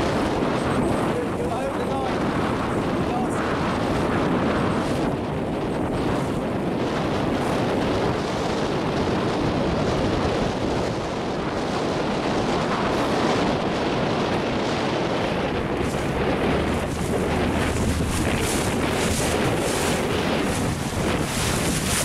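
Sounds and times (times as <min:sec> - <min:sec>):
water rushing past boat hull: 0:00.0 - 0:22.0
wind buffeting microphone: 0:00.0 - 0:22.0.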